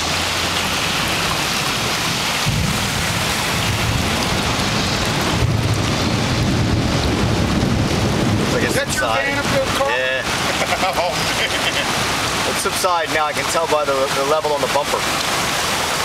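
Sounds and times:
floodwater rushing: 0.0 - 16.0
low rumble: 1.3 - 9.8.

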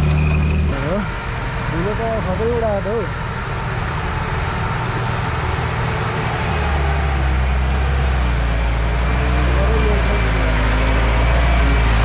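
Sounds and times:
truck diesel engine labouring: 0.0 - 12.0.

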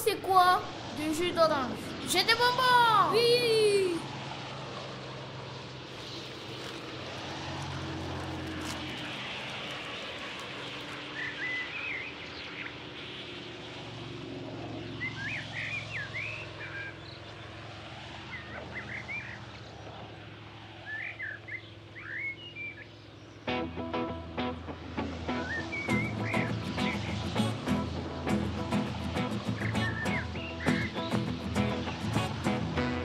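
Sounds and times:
low engine drone: 0.0 - 33.0
small birds chirping: 5.9 - 13.8, 14.6 - 23.6, 25.3 - 32.5.

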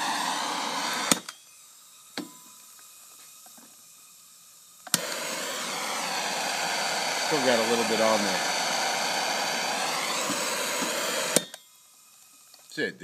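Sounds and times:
torch clicking: 0.0 - 1.4, 4.8 - 11.6
gas torch hissing: 0.0 - 12.9.

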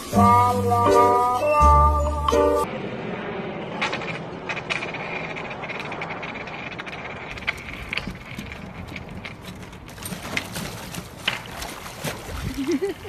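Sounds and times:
skateboard wheels rolling on paving: 2.2 - 11.6.

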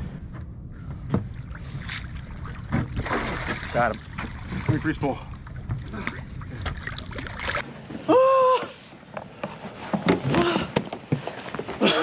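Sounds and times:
knocks and clatter of handling: 9.1 - 12.0.

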